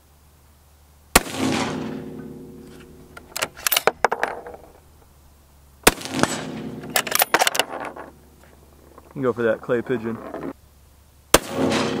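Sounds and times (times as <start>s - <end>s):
rifle shot with echo: 1.2s - 3.8s, 5.8s - 7.4s, 11.3s - 12.0s
rifle bolt metallic clicks: 2.7s - 4.7s, 6.2s - 8.1s.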